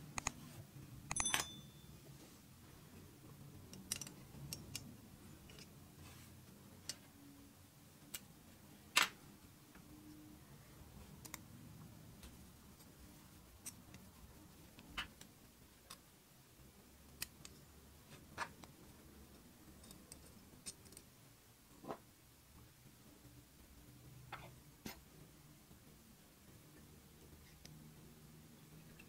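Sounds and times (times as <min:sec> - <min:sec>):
metallic clicks of revolver parts: 0:03.7 - 0:05.7.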